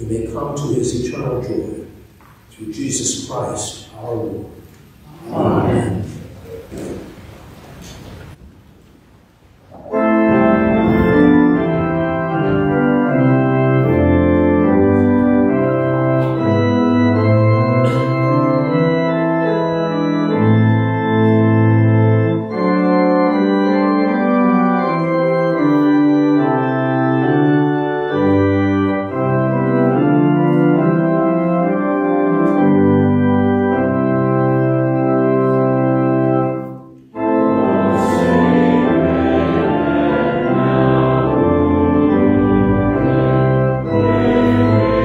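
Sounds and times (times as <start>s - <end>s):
organ chords: 0.0s - 45.0s.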